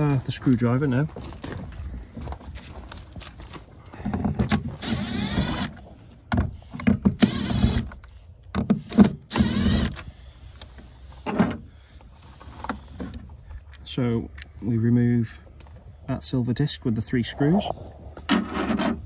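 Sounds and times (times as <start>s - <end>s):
cordless drill motor whine: 4.8s - 5.8s, 7.2s - 8.0s, 9.3s - 10.1s.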